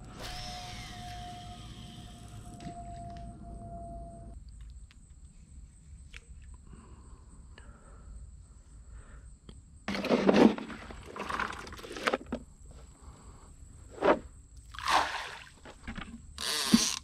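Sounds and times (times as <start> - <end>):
corn scraping in plastic bucket: 9.9 - 12.4.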